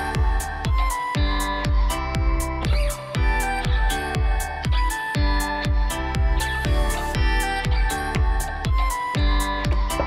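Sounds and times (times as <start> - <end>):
electronic music with beat: 0.0 - 10.0.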